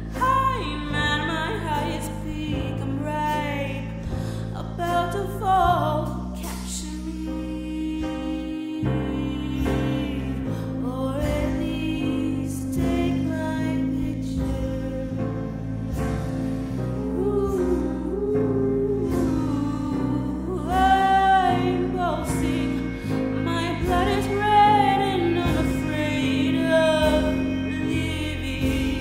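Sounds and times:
sustained accompaniment: 7.6 - 29.0.

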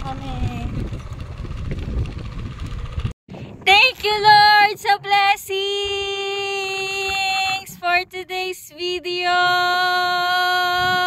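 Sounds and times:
high singing voice: 3.7 - 11.0.

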